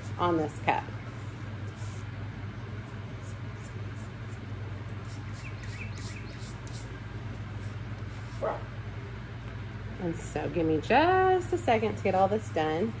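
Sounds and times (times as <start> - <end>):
steady low hum: 0.0 - 13.0
faint bird chirps: 5.3 - 6.6.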